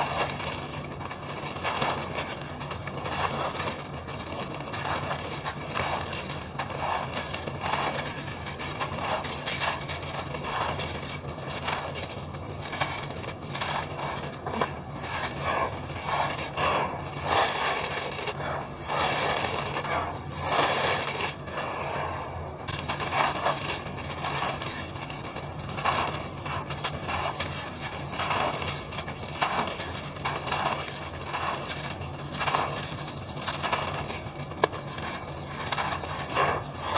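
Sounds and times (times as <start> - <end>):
grit rubbed through fingers: 0.0 - 36.9
sand-cement lumps crunching by hand: 0.0 - 36.9.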